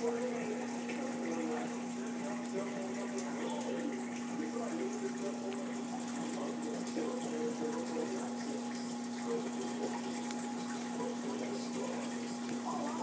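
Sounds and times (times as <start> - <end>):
pump electrical hum: 0.0 - 13.0
steady water flow: 0.0 - 13.0.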